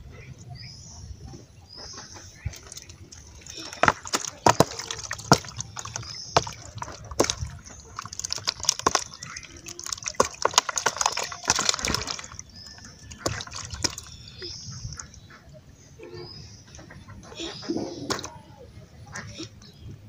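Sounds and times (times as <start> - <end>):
water sloshing: 2.0 - 15.4, 17.4 - 18.4
fish flapping and splashing: 2.4 - 14.4, 18.0 - 18.3.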